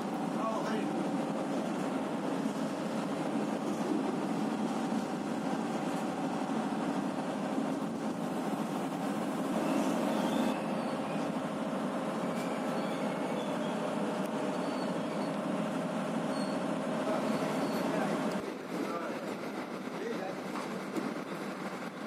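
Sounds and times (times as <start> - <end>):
train wheels rumbling: 0.0 - 22.0.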